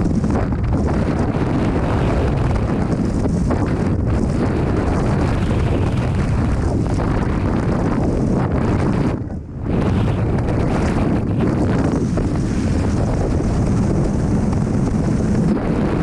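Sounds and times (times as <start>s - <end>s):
wind rushing over microphone: 0.0s - 16.0s.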